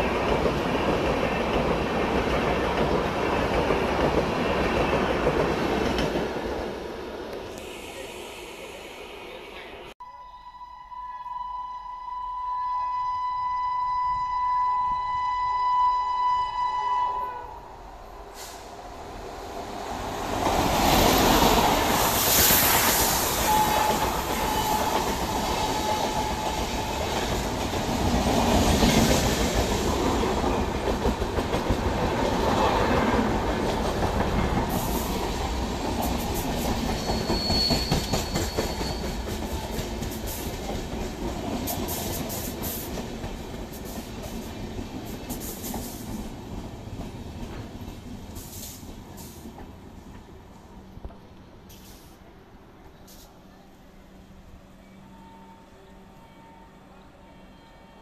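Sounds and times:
train wheels squealing: 22.3s - 27.2s, 36.3s - 40.5s.

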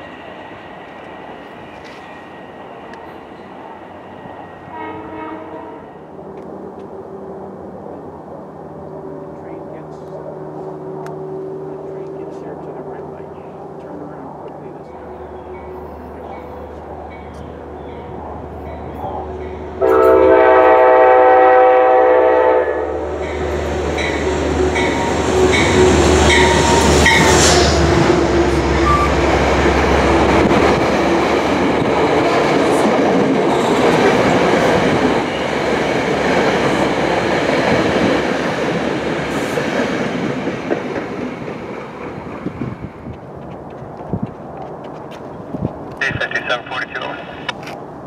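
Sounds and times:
low locomotive hum: 0.0s - 48.0s
train horn: 4.7s - 6.1s, 19.8s - 23.3s
train wheels clattering on rail: 28.8s - 46.0s.

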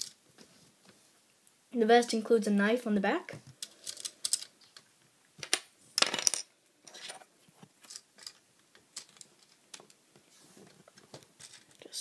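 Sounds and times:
plastic bricks clicking and rattling: 3.6s - 7.2s, 7.9s - 10.0s.

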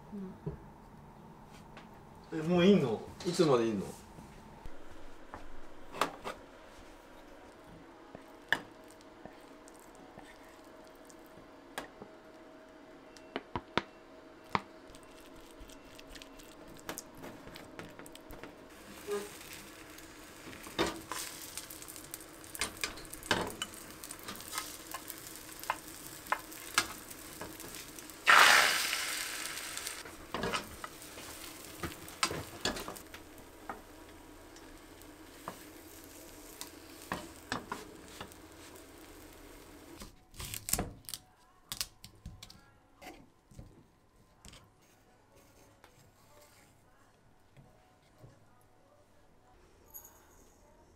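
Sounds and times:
egg sizzling in a hot pan: 18.7s - 40.0s.

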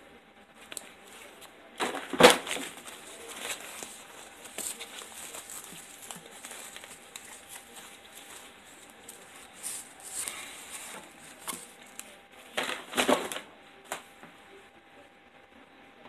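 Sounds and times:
fabric rustling: 0.9s - 13.4s.

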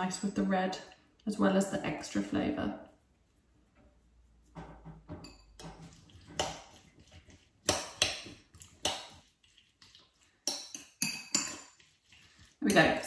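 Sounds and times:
spoon scraping wet salsa: 2.8s - 13.0s
spoon clinking against bowl: 5.2s - 5.8s, 10.5s - 11.8s.

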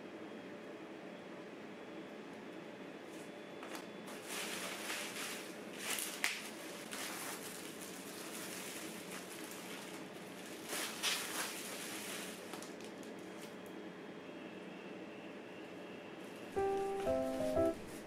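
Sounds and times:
plastic wrapping crinkling: 4.1s - 13.6s.

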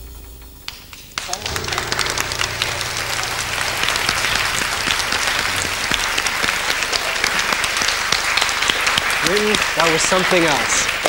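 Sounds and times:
audience applauding: 0.7s - 11.0s.

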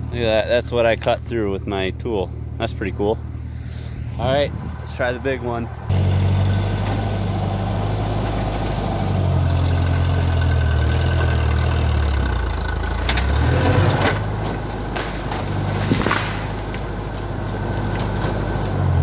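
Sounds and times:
tractor engine labouring: 0.0s - 19.0s
tree roots cracking and snapping: 13.0s - 18.2s.

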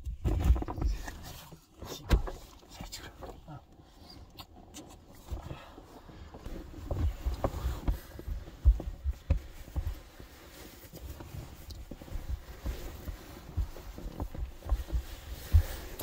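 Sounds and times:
dull thumps and bumps: 0.0s - 1.4s, 6.4s - 16.0s
sleeping bag and clothing rustle: 5.3s - 16.0s.

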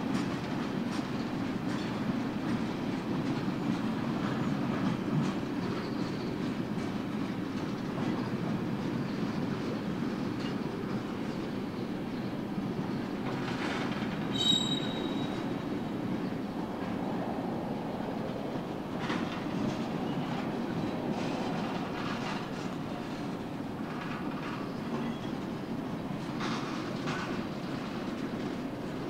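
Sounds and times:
train wheels rumbling on rail: 0.0s - 29.0s
wheel squeal: 13.6s - 15.5s.

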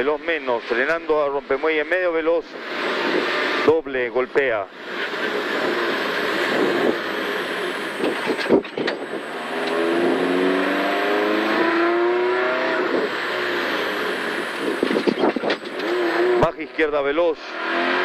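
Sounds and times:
road noise: 0.0s - 18.0s
car engine accelerating: 4.7s - 18.0s.

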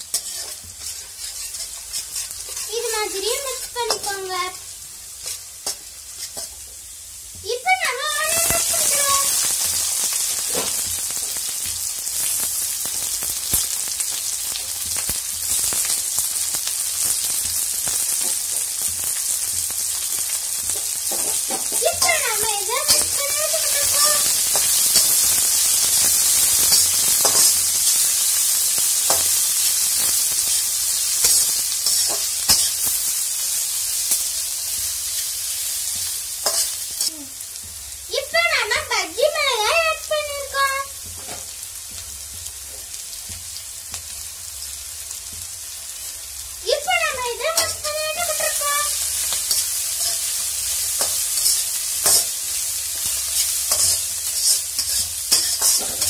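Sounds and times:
metal spatula scraping a pan: 0.0s - 4.3s, 5.2s - 6.6s, 20.6s - 28.0s, 31.2s - 33.1s, 49.2s - 52.4s, 53.0s - 56.0s
onions sizzling in hot oil: 0.0s - 56.0s.

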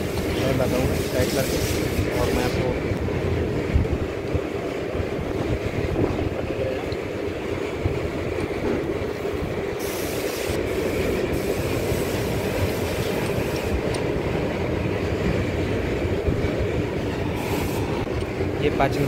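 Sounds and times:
hiss: 0.0s - 2.7s, 9.8s - 13.8s, 17.3s - 18.0s.

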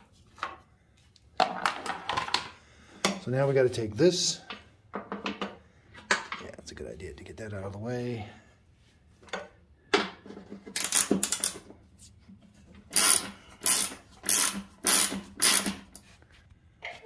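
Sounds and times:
ratchet wrench clicking: 10.8s - 11.6s, 12.9s - 16.0s.

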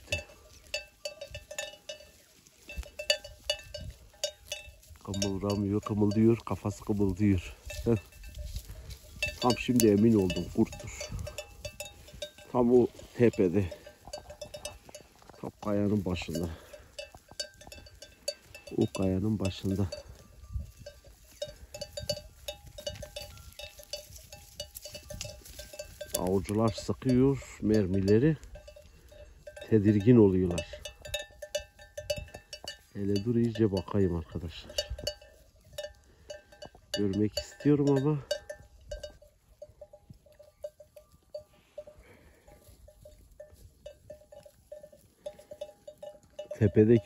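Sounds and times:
sheep bells clinking: 0.0s - 47.0s.

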